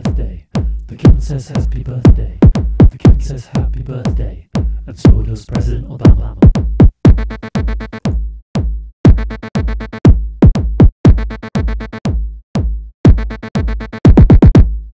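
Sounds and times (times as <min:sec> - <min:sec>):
drum machine kicks: 0:00.0 - 0:14.9
chopped sample stutters: 0:05.0 - 0:14.7.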